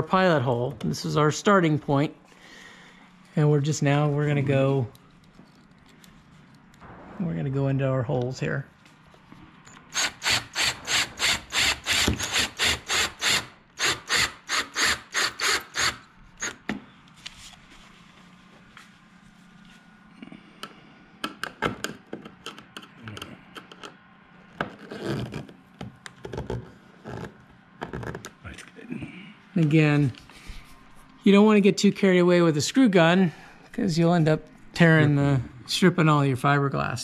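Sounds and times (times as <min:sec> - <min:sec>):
drill driving screws rasping: 0:09.7 - 0:16.6.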